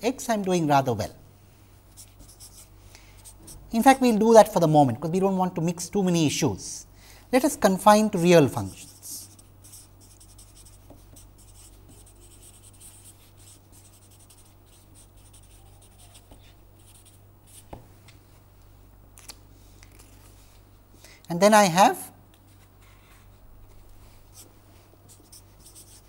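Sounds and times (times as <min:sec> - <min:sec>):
low steady hum: 0:00.0 - 0:26.0
marker scratching on paper: 0:01.9 - 0:03.6, 0:08.2 - 0:17.8, 0:25.1 - 0:26.0.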